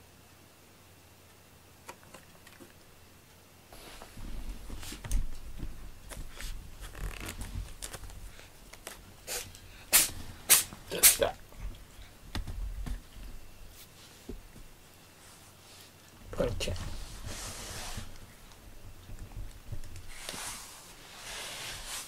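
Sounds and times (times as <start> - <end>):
cat rustling in cardboard box: 16.6 - 18.3.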